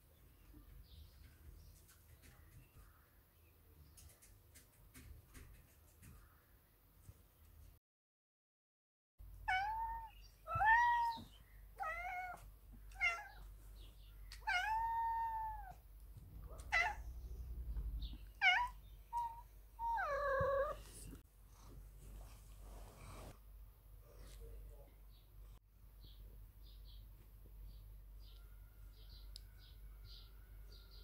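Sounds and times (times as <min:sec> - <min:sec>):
cat meowing: 0:09.4 - 0:13.4, 0:14.4 - 0:15.8, 0:16.4 - 0:17.2, 0:18.4 - 0:20.9.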